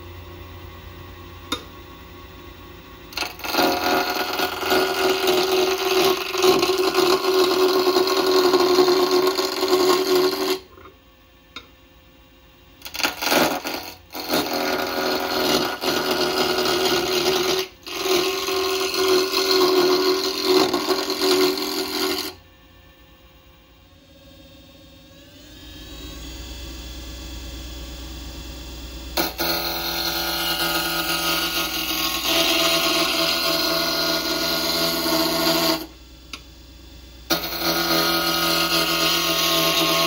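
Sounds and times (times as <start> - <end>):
lathe tool cutting wood: 3.2 - 10.7, 12.8 - 22.4, 29.2 - 36.0, 37.3 - 40.0.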